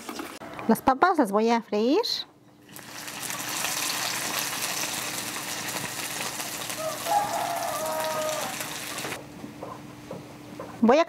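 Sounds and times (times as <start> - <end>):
potatoes sizzling in oil: 2.7 - 9.2.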